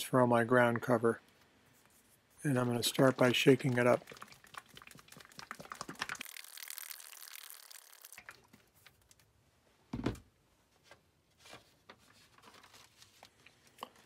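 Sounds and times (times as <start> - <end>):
paint sloshing in shaken can: 2.4 - 9.0.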